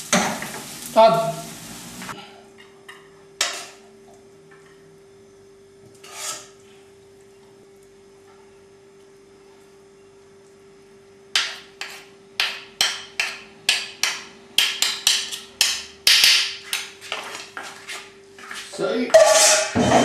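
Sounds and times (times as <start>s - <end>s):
dishes clattering: 19.1s - 20.0s.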